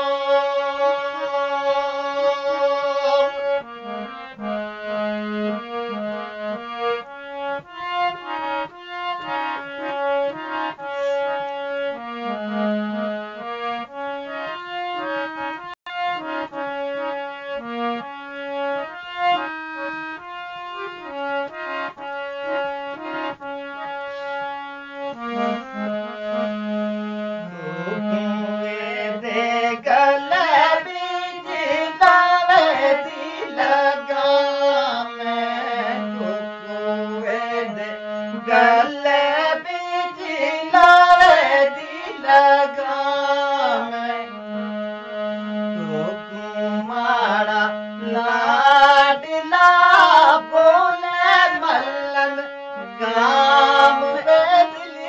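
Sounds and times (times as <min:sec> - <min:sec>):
person singing folk song: 0:00.0 - 0:03.4, 0:25.1 - 0:55.0
harmonium playing: 0:00.0 - 0:55.0.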